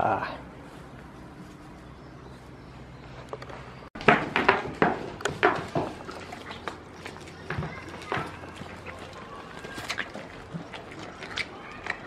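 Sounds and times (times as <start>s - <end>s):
goat chewing with wet crunches: 4.4s - 12.0s.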